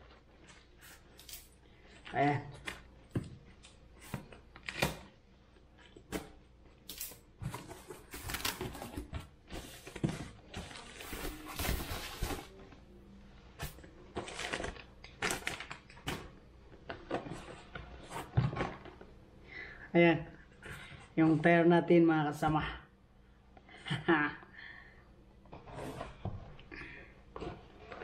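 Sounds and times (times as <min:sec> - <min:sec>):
cardboard and plastic rustling: 0:07.2 - 0:12.9, 0:13.6 - 0:19.2.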